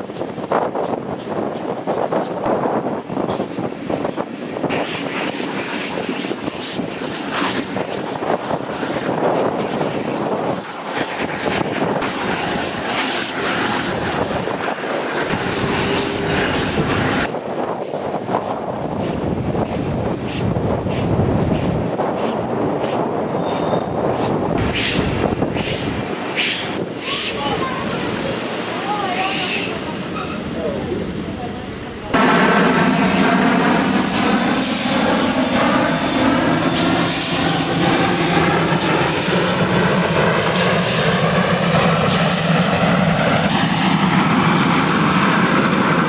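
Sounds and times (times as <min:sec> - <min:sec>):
train wheels rolling: 0:00.0 - 0:27.3
wind: 0:00.0 - 0:46.0
steam locomotive beat: 0:11.4 - 0:27.3, 0:28.4 - 0:46.0.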